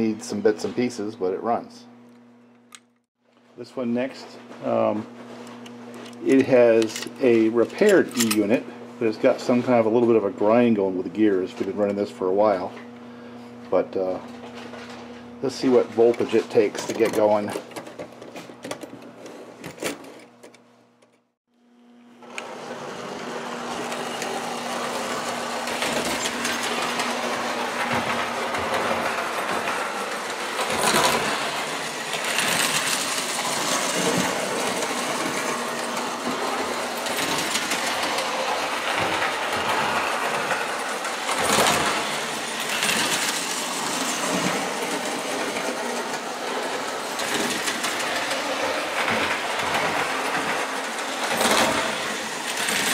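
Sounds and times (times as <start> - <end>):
toy train motor and gears: 6.0 - 8.4, 22.9 - 52.9.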